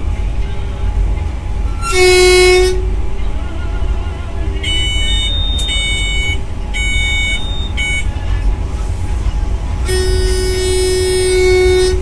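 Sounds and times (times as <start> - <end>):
electric locomotive rumbling: 0.0 - 12.0
two-tone electronic alarm beeping: 4.6 - 8.2.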